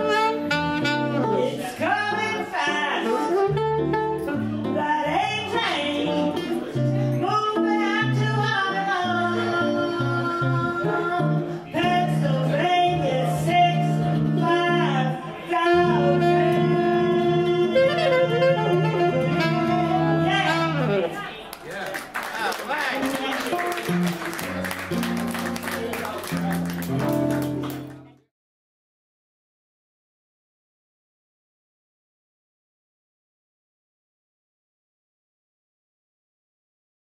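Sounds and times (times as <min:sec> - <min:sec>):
alto saxophone: 0:00.0 - 0:21.2
woman singing jazz: 0:00.0 - 0:21.2
guitar accompaniment: 0:00.0 - 0:21.5, 0:22.9 - 0:28.2.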